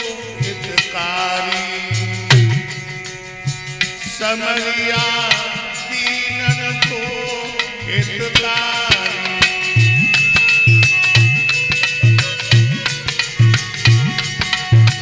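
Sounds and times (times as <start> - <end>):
man singing into microphone: 0.0 - 3.2, 3.9 - 10.7
harmonium chords: 0.0 - 15.0
tabla strokes: 0.0 - 15.0.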